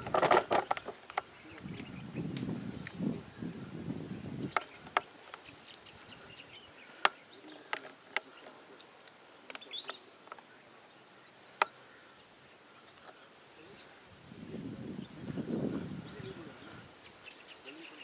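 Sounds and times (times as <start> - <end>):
sharp clicks: 0.4 - 3.0.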